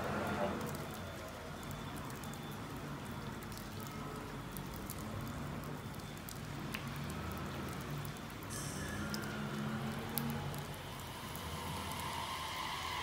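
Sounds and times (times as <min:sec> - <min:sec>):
rain dripping and pattering: 0:00.0 - 0:13.0
electric train equipment humming: 0:10.8 - 0:13.0.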